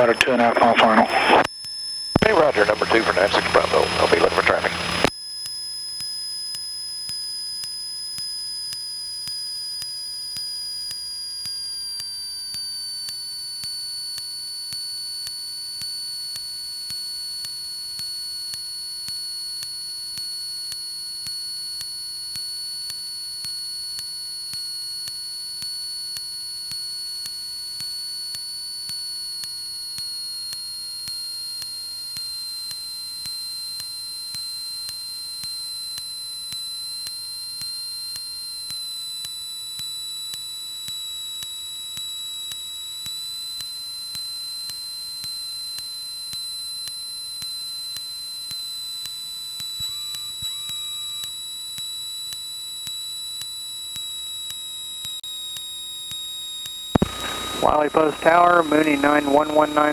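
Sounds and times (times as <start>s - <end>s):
high-pitched cockpit whine: 0.0s - 1.5s, 2.2s - 5.1s, 56.9s - 59.9s
faint pulse: 57.0s - 59.9s.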